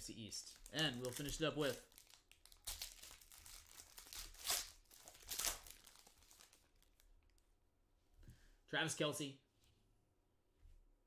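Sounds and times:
foil wrapper tearing and crinkling: 0:00.6 - 0:07.0.

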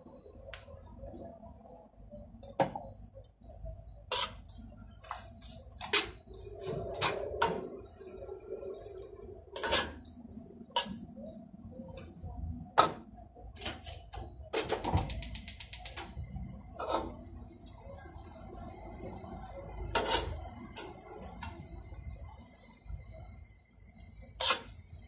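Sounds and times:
metal spatula scraping wok: 0:04.1 - 0:04.6, 0:05.8 - 0:10.1, 0:16.8 - 0:17.2, 0:19.9 - 0:21.0, 0:24.4 - 0:24.8.

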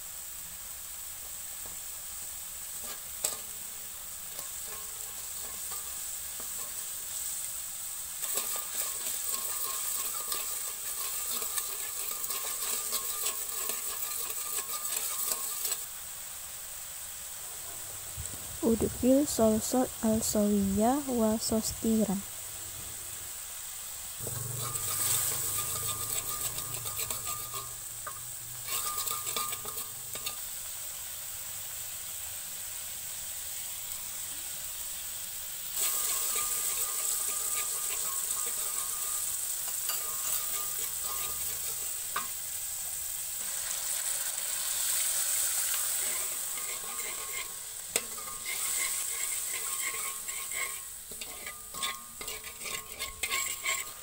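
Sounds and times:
sauce sizzling in hot oil: 0:00.0 - 0:54.0
metal spatula scraping wok: 0:02.6 - 0:16.0, 0:24.2 - 0:31.0, 0:35.8 - 0:54.0.

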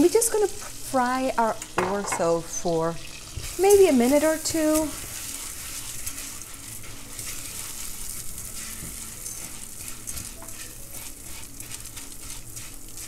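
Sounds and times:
orzo sizzling in butter: 0:00.0 - 0:13.0
spatula scraping grains in pot: 0:03.3 - 0:13.0.

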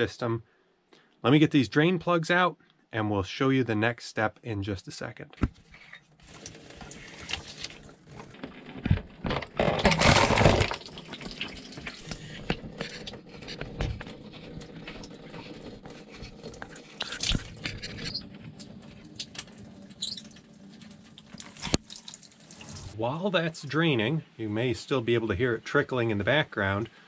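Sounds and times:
water pouring and trickling: 0:05.9 - 0:08.8, 0:09.8 - 0:23.0.

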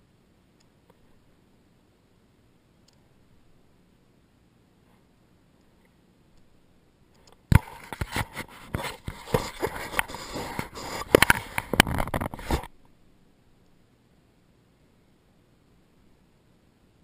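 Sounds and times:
sleeve rubbing against camera: 0:07.6 - 0:12.7.

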